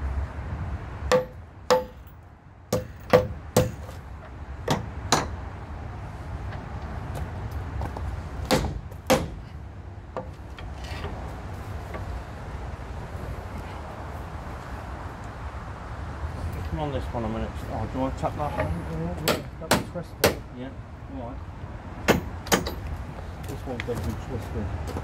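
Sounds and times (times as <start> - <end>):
hammer striking metal beam: 1.1 - 2.1, 2.7 - 4.0, 4.7 - 5.4, 8.5 - 9.5, 19.2 - 20.4, 22.1 - 22.8.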